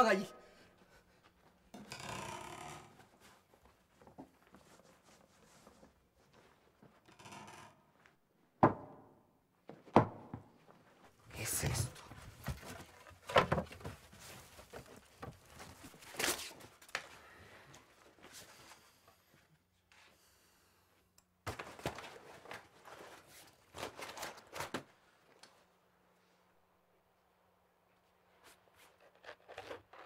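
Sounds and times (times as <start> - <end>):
rummaging through belongings: 21.5 - 24.9
paper and cloth rustling: 21.5 - 25.4.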